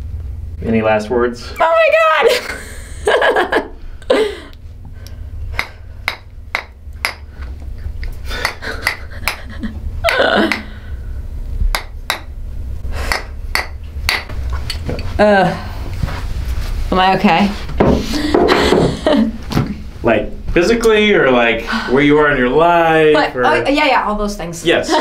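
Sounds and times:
sharp mallet knocks: 5.6s - 7.3s, 11.7s - 12.3s.

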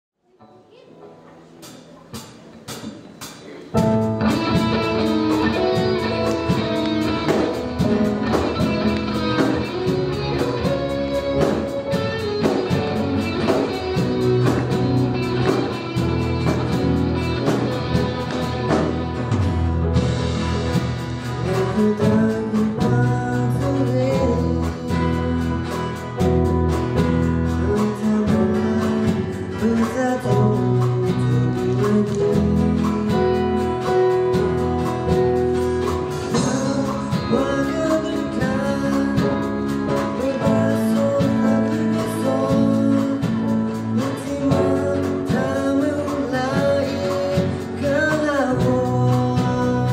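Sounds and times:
plucked guitar-like accompaniment: 0.7s - 49.9s
person singing: 3.8s - 19.2s, 20.8s - 26.6s, 27.4s - 49.9s.

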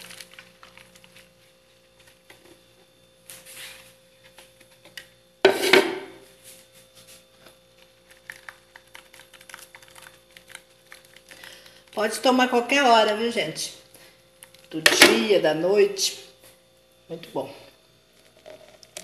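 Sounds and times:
juice pouring into strainer: 18.2s - 19.0s.

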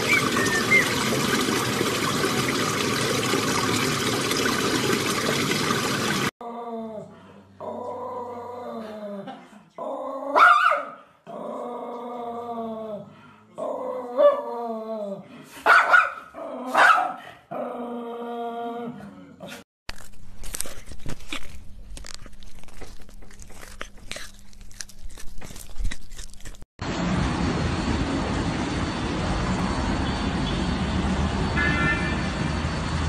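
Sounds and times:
puppy whining and howling: 0.0s - 1.1s
puppy yipping: 0.0s - 1.1s.

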